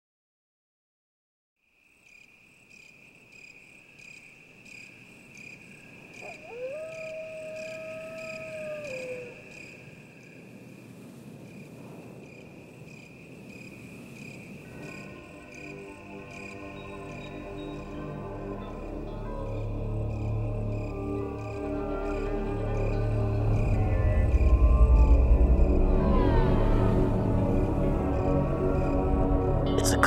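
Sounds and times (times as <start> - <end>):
crickets chirping: 1.6 - 30.0
long howl: 6.1 - 9.9, 18.4 - 29.6.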